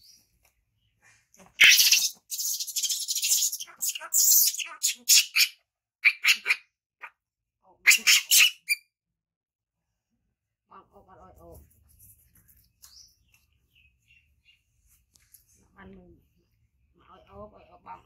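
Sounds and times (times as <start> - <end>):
baby monkey screeching: 1.6 - 7.2, 7.8 - 8.9.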